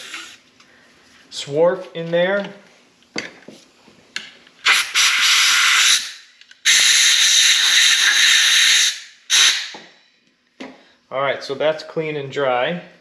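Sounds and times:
compressed air blow gun blasting: 0:04.6 - 0:09.8.

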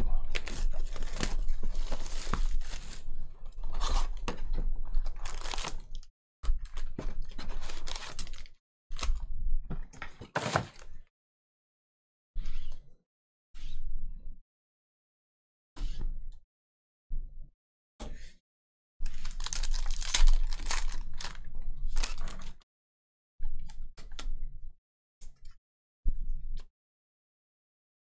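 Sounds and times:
foil packs crinkling: 0:00.3 - 0:03.0, 0:05.1 - 0:06.0, 0:06.6 - 0:09.1, 0:19.1 - 0:22.5.

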